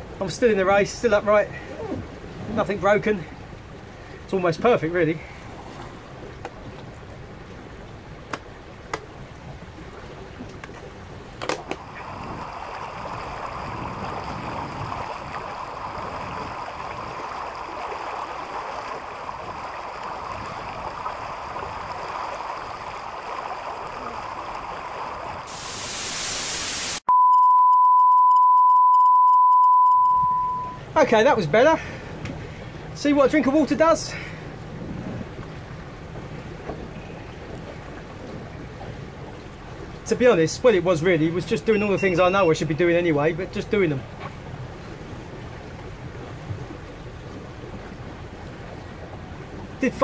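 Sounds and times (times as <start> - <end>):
rush of water and wind: 0.0 - 27.0, 29.9 - 50.0
loud hiss: 25.5 - 27.0
steady single-pitch beep: 27.1 - 30.8, 41.7 - 42.6.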